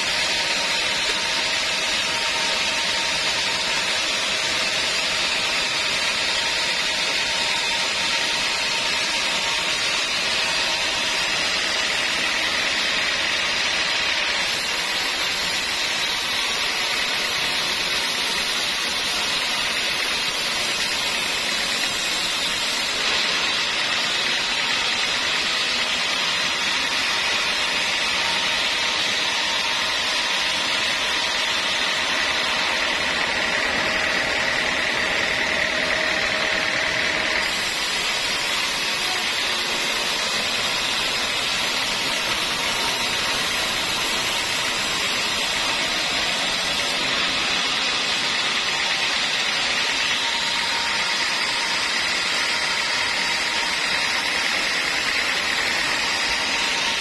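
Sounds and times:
band sawmill cutting log: 0.0 - 57.0.

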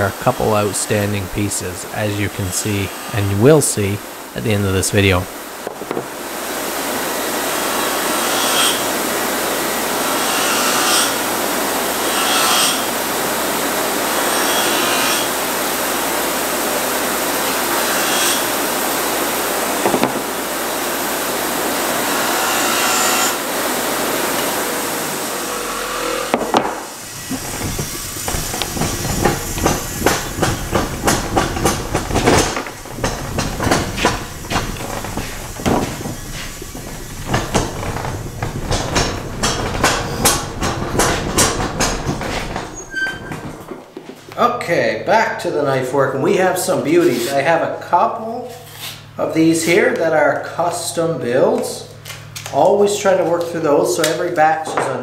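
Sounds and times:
bench grinder grinding knife blade: 6.8 - 43.4.

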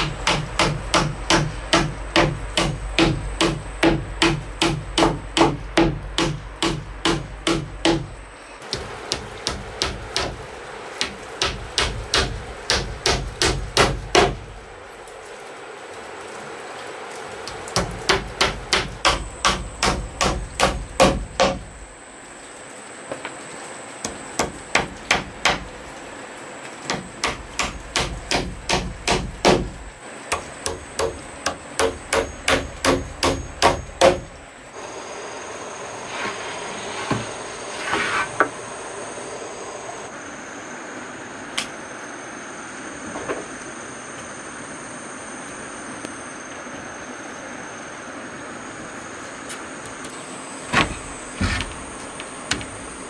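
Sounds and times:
hammer driving nails into wood: 0.0 - 8.1, 17.8 - 21.6, 26.9 - 34.3.

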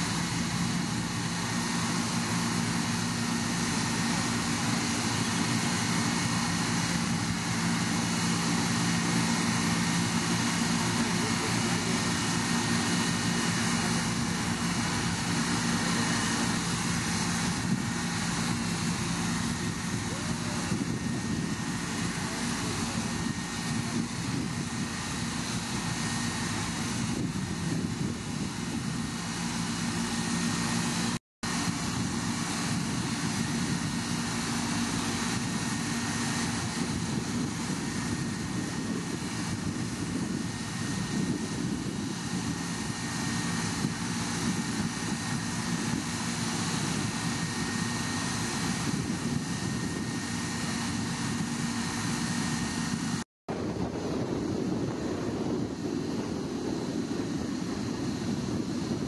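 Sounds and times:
machinery drone: 0.0 - 59.0.

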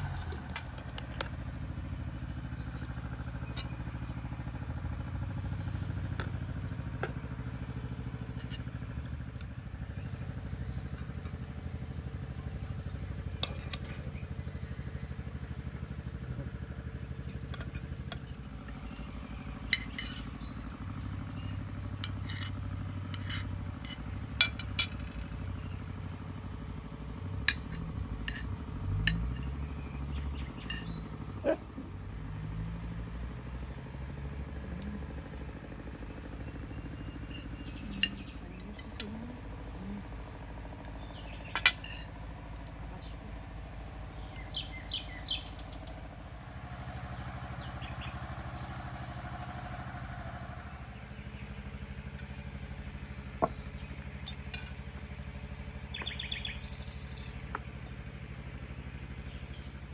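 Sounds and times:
low hum: 0.0 - 59.9.

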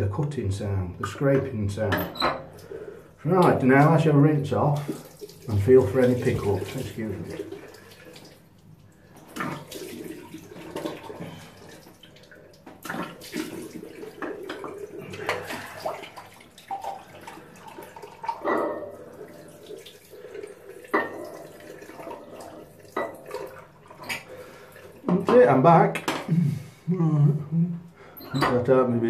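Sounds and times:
water running into a sink: 3.4 - 25.7
water splashing: 3.6 - 25.6.

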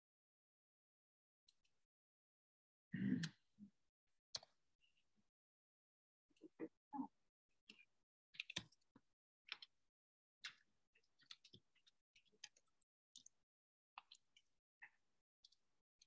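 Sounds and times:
faint irregular clicks and taps: 4.3 - 4.6, 7.6 - 9.8, 10.4 - 13.4, 14.0 - 15.7.

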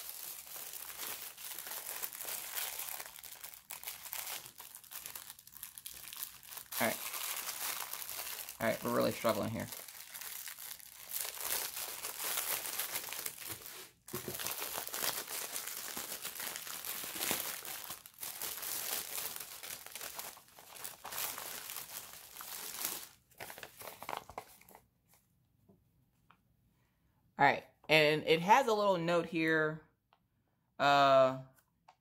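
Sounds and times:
plastic packaging crinkling: 0.0 - 24.8.

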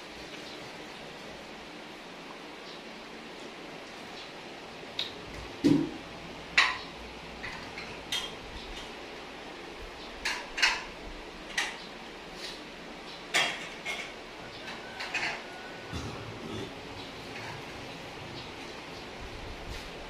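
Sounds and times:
utensils clinking on plates: 6.6 - 9.0, 10.2 - 11.8, 13.3 - 17.8.

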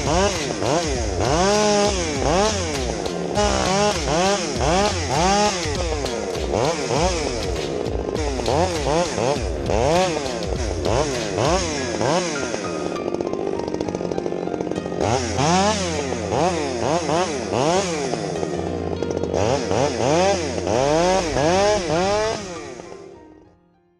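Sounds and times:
chainsaw engine revving: 0.0 - 23.2.

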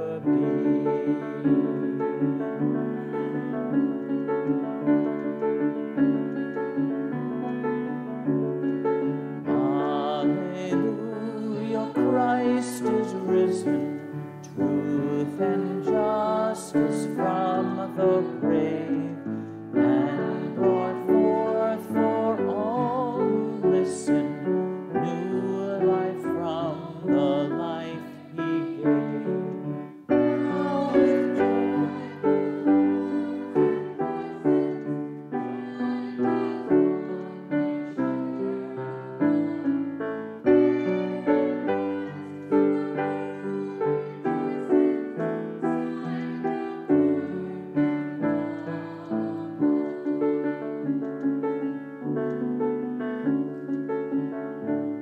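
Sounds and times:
person singing with vibrato: 0.0 - 2.3, 9.5 - 50.8
hymn on piano: 0.0 - 55.0.

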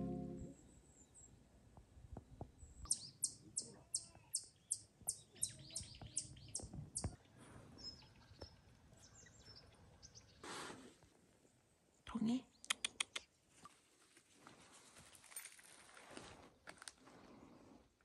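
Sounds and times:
songbird singing: 2.2 - 10.5
soft bird calls: 2.7 - 10.6.

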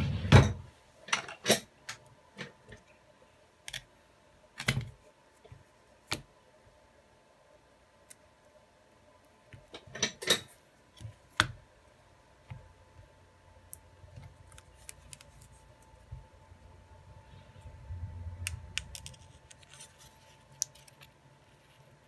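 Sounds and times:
plastic phone parts clicking: 18.5 - 19.9.

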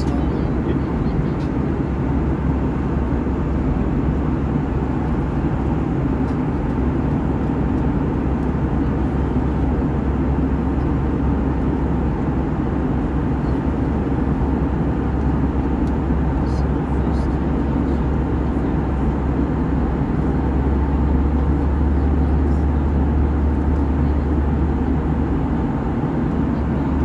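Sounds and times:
airplane engines and airflow rush: 0.0 - 27.0
constant low hum: 0.0 - 27.0.

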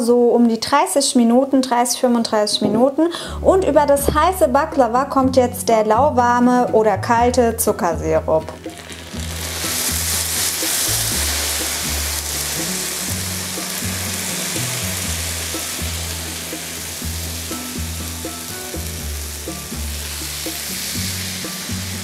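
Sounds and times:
background music: 0.1 - 22.0
sugar syrup sizzling: 7.8 - 22.0.

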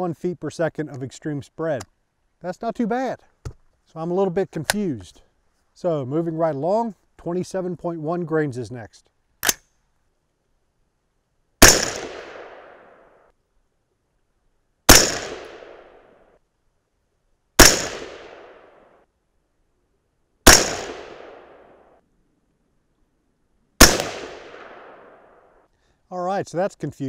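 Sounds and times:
rifle shots with echo: 11.6 - 13.0, 14.9 - 16.0, 17.6 - 18.8, 20.4 - 21.8, 23.8 - 25.4.

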